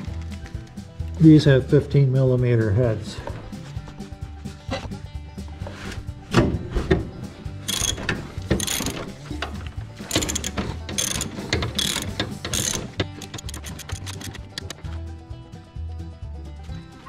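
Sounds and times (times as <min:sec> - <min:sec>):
socket ratchet clicking: 0:07.7 - 0:14.8.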